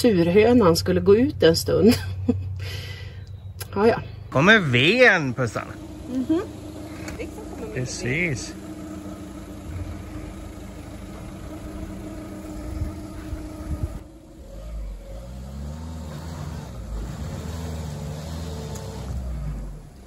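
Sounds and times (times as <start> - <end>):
vehicle engine revving: 4.0 - 20.0.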